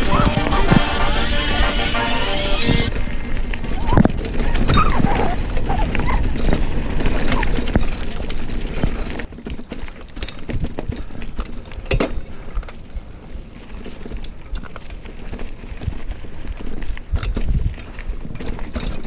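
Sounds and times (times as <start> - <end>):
bike rattling over bumps: 2.8 - 19.0
bike tyres rolling on dirt: 2.8 - 19.0
wind buffeting microphone: 10.4 - 19.0.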